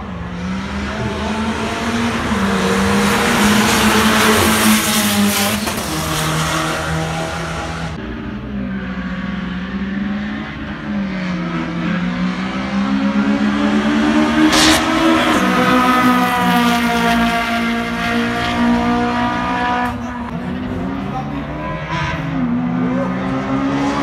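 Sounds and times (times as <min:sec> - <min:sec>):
car engines idling and revving: 0:00.0 - 0:24.0
race car speeding past: 0:09.0 - 0:24.0.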